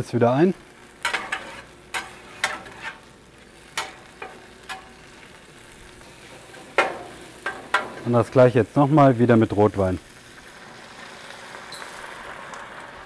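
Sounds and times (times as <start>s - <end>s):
food sizzling: 0.0s - 13.0s
metal spatula scraping a pan: 1.0s - 5.2s, 6.0s - 8.2s.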